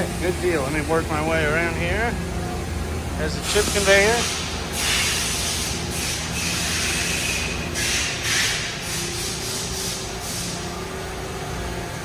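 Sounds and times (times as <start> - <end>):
machinery low hum: 0.0 - 12.0.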